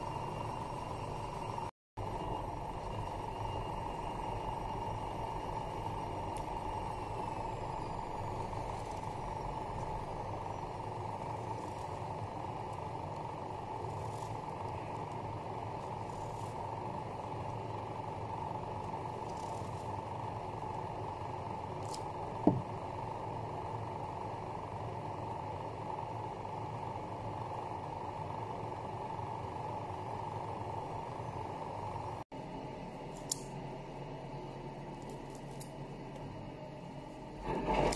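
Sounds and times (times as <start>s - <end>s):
background hum and hiss: 0.0s - 37.9s.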